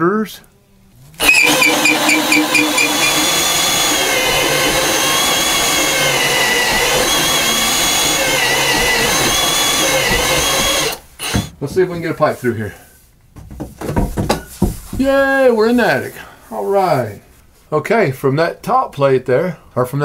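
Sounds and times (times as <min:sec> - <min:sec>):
drill boring through wood: 0:01.2 - 0:11.6.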